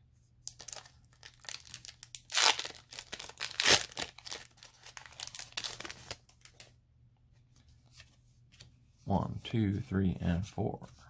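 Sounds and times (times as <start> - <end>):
foil wrapper crinkling and tearing: 0.4 - 6.6.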